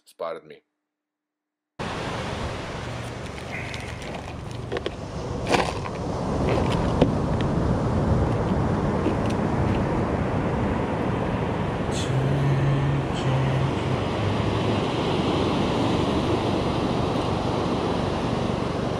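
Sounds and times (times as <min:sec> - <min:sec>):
ocean surf breaking: 0:01.8 - 0:18.9
wind buffeting microphone: 0:01.9 - 0:18.9.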